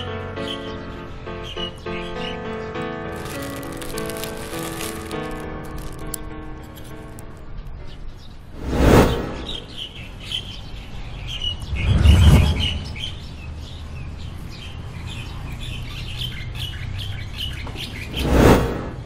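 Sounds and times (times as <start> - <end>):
small birds chirping: 0.0 - 19.0
loud whooshes: 8.6 - 9.8, 11.6 - 13.4, 18.1 - 19.0.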